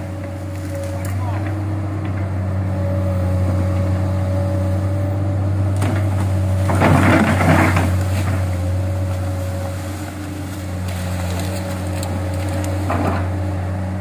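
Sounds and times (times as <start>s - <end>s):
branches crackling and snapping: 0.0s - 1.7s, 5.6s - 13.5s
excavator diesel engine running: 0.0s - 14.0s.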